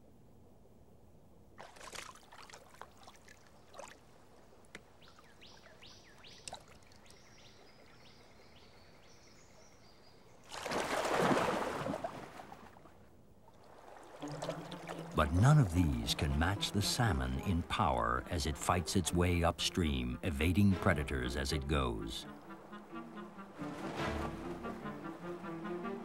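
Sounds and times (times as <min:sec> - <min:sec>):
fish splashing into water: 0:01.6 - 0:04.2, 0:10.5 - 0:12.8
water splashes and drips: 0:01.6 - 0:08.0, 0:10.4 - 0:18.7, 0:21.0 - 0:25.4.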